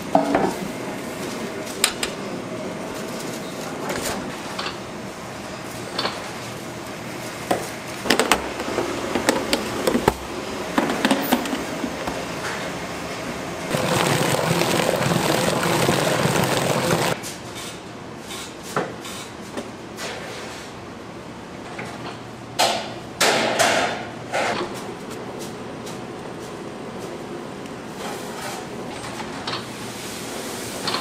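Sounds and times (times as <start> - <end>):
machine rushing: 13.7 - 17.2.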